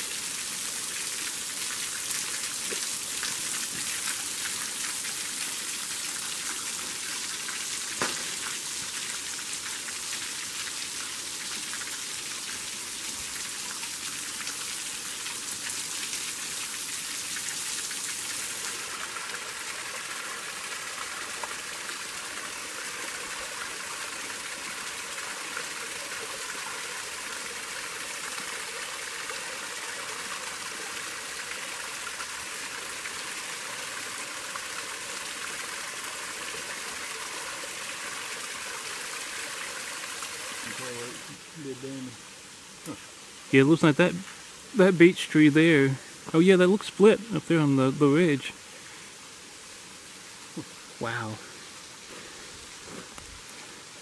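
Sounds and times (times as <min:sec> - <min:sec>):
small waterfall rushing: 0:00.0 - 0:54.0
water splattering on rock: 0:07.9 - 0:08.7.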